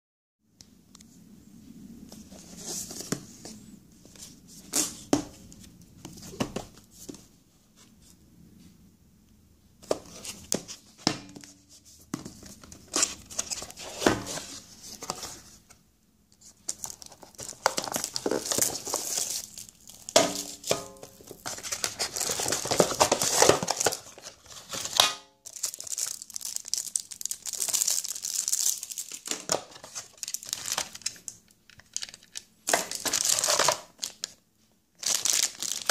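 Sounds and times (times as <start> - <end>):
plastic packaging crinkling: 16.7 - 34.4, 35.0 - 35.9.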